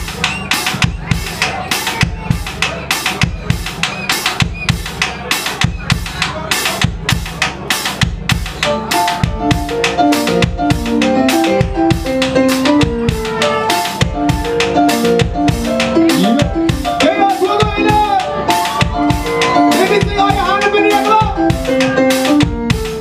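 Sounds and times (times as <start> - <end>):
bass guitar: 0.0 - 23.0
drum kit beat: 0.0 - 23.0
keyboard chords: 0.0 - 23.0
sliding vocal melody: 15.7 - 22.1.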